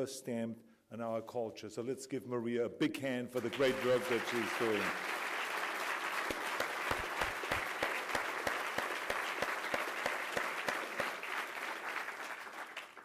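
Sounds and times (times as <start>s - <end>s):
audience applauding: 3.4s - 13.0s
nearby person clapping sharply: 3.4s - 13.0s.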